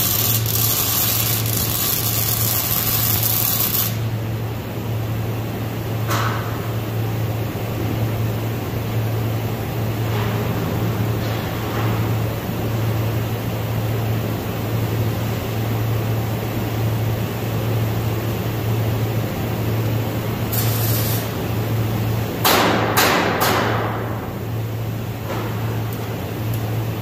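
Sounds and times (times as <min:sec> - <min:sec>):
welder hissing: 0:00.0 - 0:04.1, 0:20.5 - 0:21.4.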